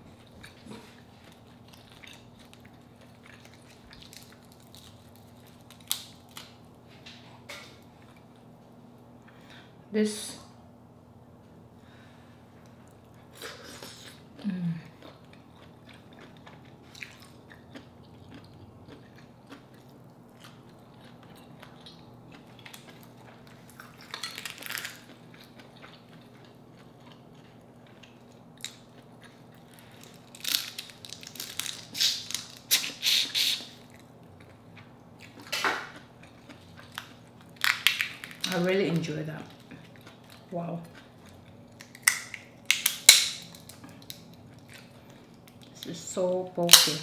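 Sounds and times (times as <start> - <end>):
person chewing: 0.0 - 6.6, 12.6 - 38.5, 39.5 - 45.8
shells cracked and peeled: 3.4 - 6.6, 24.0 - 25.1, 29.7 - 33.0, 36.9 - 39.0, 41.6 - 45.8, 46.6 - 47.0.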